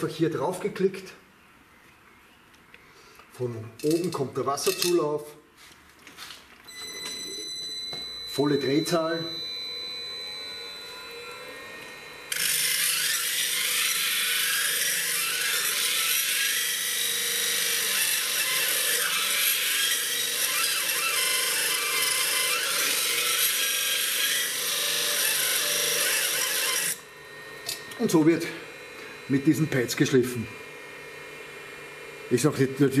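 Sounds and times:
grinding machine motor hum: 6.7 - 33.0.

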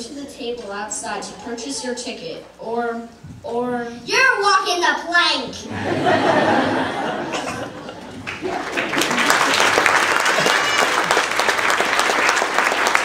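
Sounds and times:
audience applause: 5.8 - 13.0.

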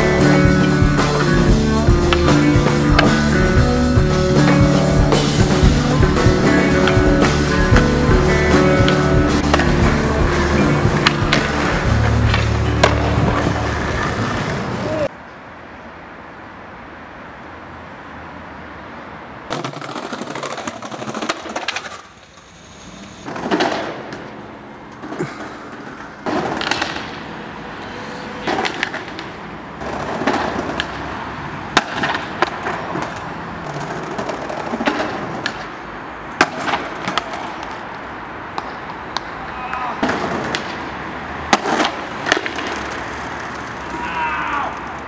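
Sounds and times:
skateboard wheels rolling on concrete: 0.0 - 17.4, 18.2 - 45.0
skateboard popping and landing: 4.4 - 14.9, 19.5 - 27.4, 28.4 - 45.0.

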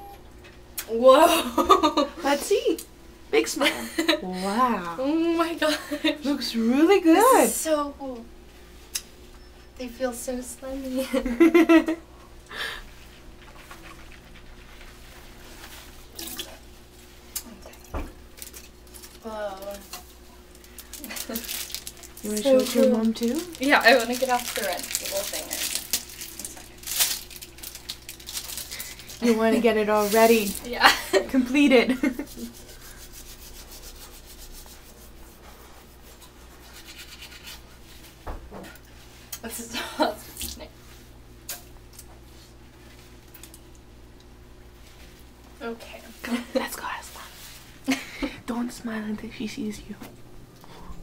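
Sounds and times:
paper bib crinkling: 20.5 - 29.3
toothbrush scrubbing teeth: 32.0 - 37.7.

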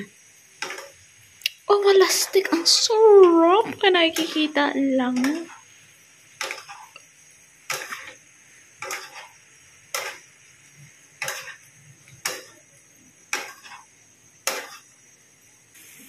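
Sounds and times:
spatula knocking a wok: 0.6 - 1.0, 2.4 - 5.6, 6.4 - 7.0, 7.6 - 8.2, 8.8 - 10.4, 11.1 - 11.6, 12.2 - 12.6, 13.3 - 13.8, 14.4 - 14.9.

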